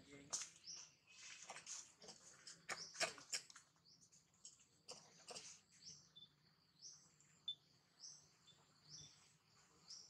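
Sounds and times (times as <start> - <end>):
faint bird chirps: 2.4 - 10.0.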